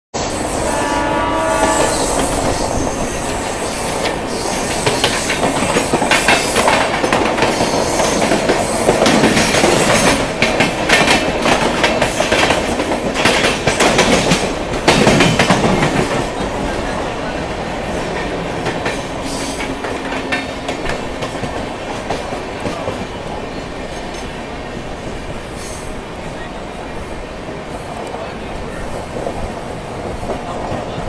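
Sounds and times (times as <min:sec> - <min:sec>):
train horn: 0:00.3 - 0:04.4
train wheels clattering on rails: 0:00.3 - 0:26.5, 0:27.3 - 0:31.0.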